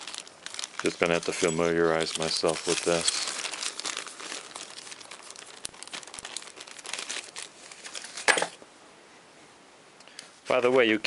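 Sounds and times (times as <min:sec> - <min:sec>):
plastic bag crinkling: 0:00.0 - 0:08.6
small metal parts shifting: 0:00.8 - 0:07.0.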